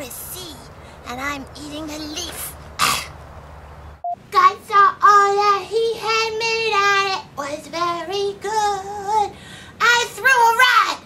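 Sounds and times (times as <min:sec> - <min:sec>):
high puppet voice singing: 0:04.3 - 0:11.0.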